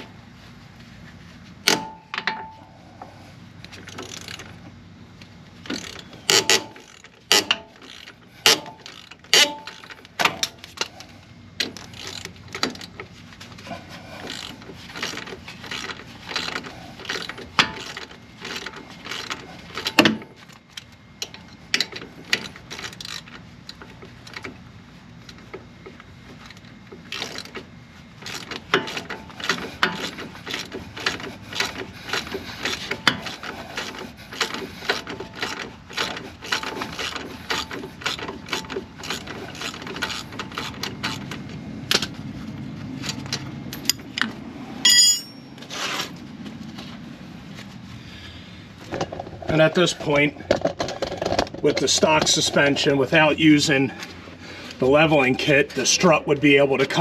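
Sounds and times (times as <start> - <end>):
metal clanks of tools: 1.6 - 2.6, 5.7 - 10.9, 43.0 - 46.1
ratchet wrench clicking: 3.6 - 4.5, 5.6 - 11.0, 11.6 - 13.1, 14.2 - 24.6, 26.4 - 42.1.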